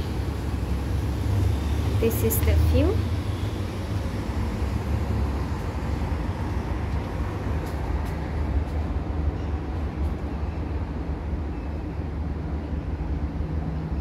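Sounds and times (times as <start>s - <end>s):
city road traffic hum: 0.0s - 14.0s.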